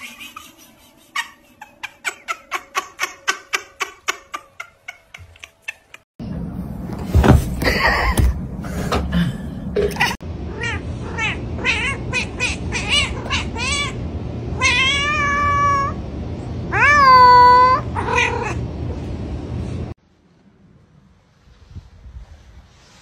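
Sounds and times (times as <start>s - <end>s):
cat meowing: 14.6s - 16.0s, 16.7s - 18.6s.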